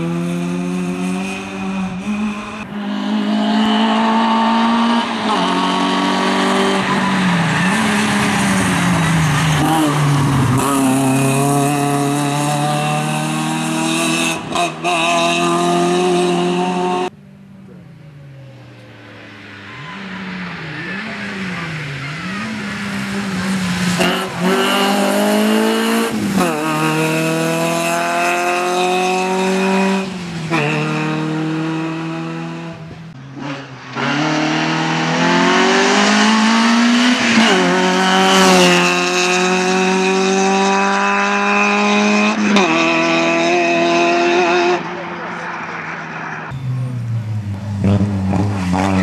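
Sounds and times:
rally car engine revving: 0:00.0 - 0:18.0, 0:19.0 - 0:49.0.

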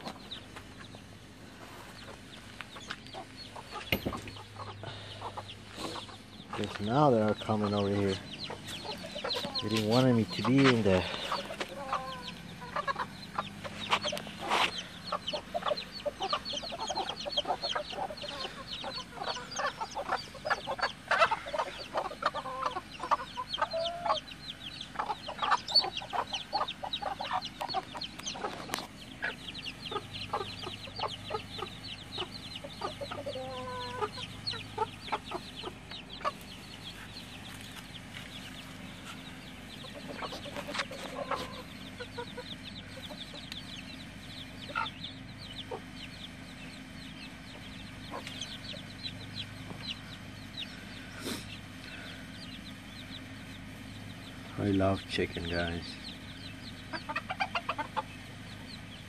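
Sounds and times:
hens clucking: 0:00.0 - 0:59.0.

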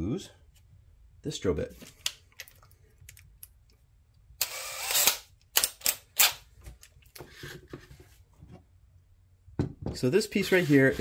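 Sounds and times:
sharp clicks of drill chuck: 0:04.4 - 0:06.4.

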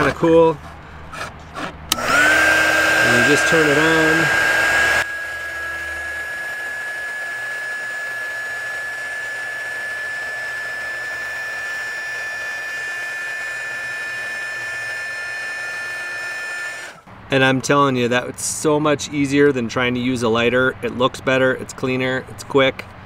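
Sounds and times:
heat gun fan whine: 0:01.1 - 0:17.1.

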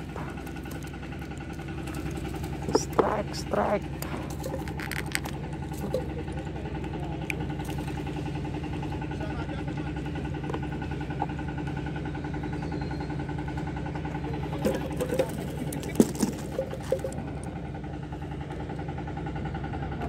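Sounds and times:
engine droning: 0:00.0 - 0:20.0
fish knocking in wooden box: 0:04.0 - 0:06.1, 0:14.6 - 0:17.2.

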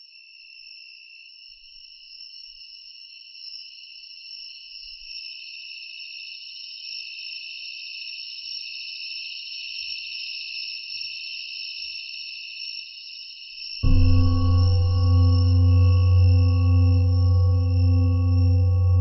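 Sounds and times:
singing bowl ringing: 0:13.8 - 0:19.0.

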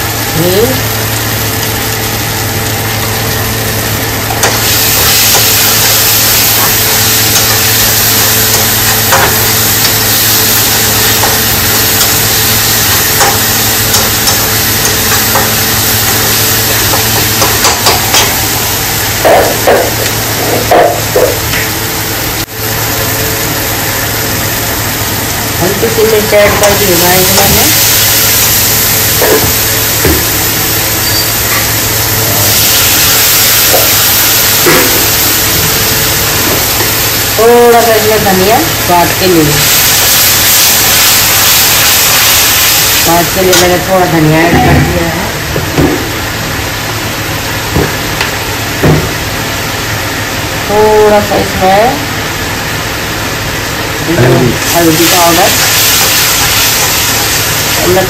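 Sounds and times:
masala sizzling in oil: 0:00.0 - 0:58.0.

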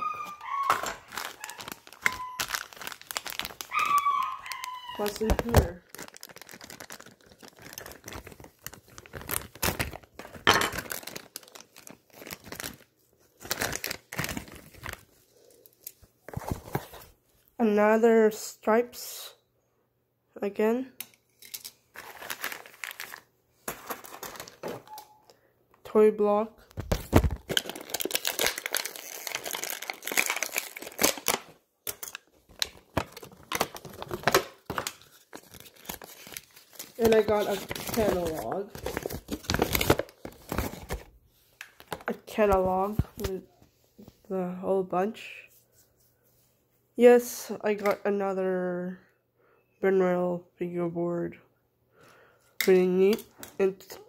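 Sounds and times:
plastic packaging crinkling: 0:00.0 - 0:17.0, 0:21.9 - 0:25.1, 0:26.7 - 0:43.4.

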